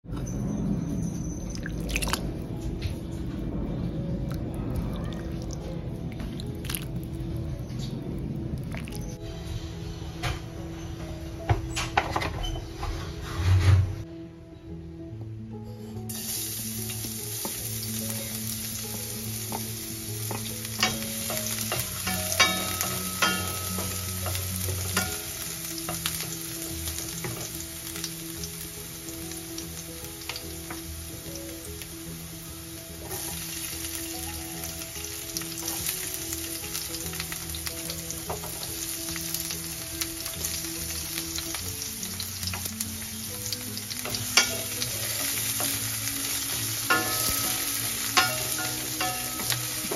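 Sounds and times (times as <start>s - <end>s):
garlic and onion sizzling in oil: 15.8s - 49.9s.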